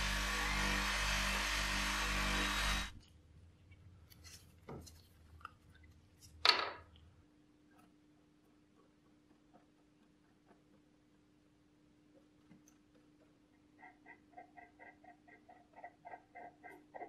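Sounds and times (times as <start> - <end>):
bench grinder buffing wheel running: 0.0 - 3.0.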